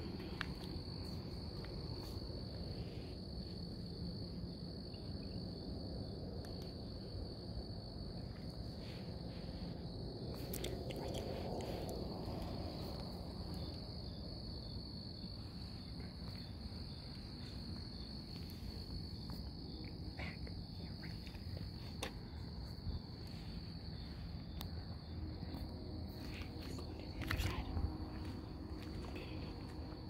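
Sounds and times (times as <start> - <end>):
crickets trilling: 0.0 - 30.0
low rumble: 5.8 - 19.2.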